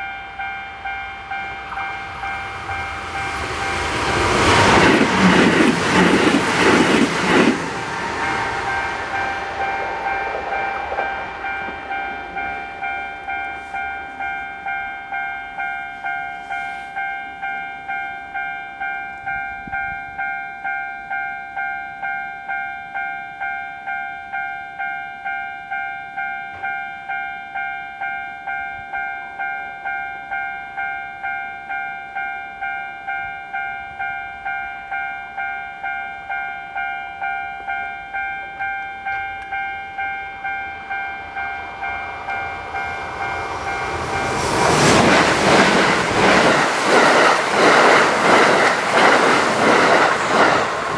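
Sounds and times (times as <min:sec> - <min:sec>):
level crossing bell clanging: 0:00.0 - 0:45.1
train rushing past: 0:00.9 - 0:15.7, 0:39.5 - 0:50.9.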